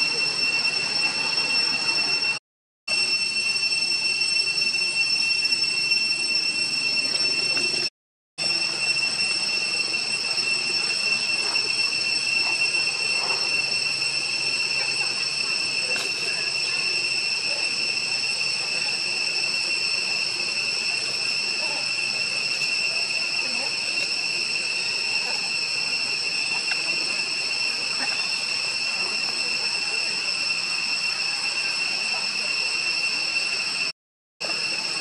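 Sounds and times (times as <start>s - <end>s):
high-pitched insect chorus: 0.0s - 7.8s, 8.4s - 35.0s.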